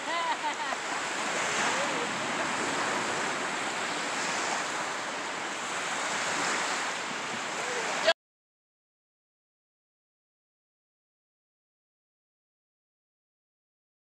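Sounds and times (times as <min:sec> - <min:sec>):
surf washing on beach: 0:00.0 - 0:08.2
wind on microphone: 0:00.8 - 0:08.1.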